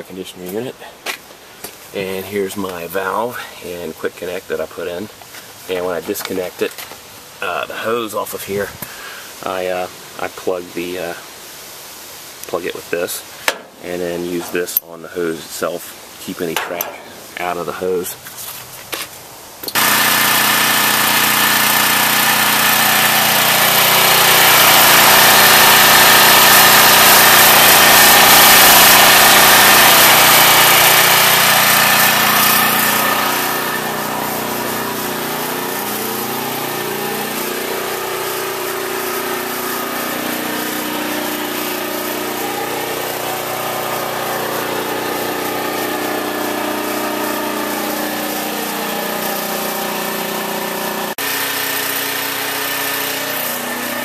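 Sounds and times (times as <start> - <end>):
generator engine running: 19.7 - 54.0.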